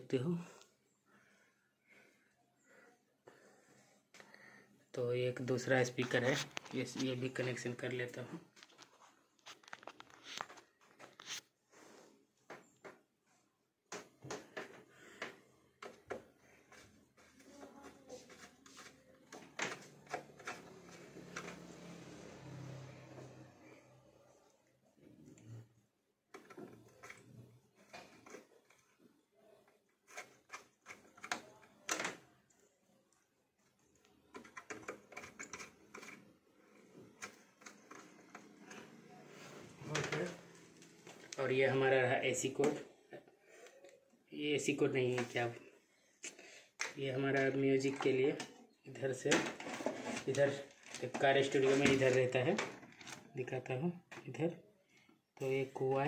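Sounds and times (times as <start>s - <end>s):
clicks and rustles of wires: 5.7s - 11.6s, 13.8s - 21.9s, 26.3s - 44.0s, 45.0s - 54.5s
screwdriver clicks and metal scrapes: 34.3s - 39.0s.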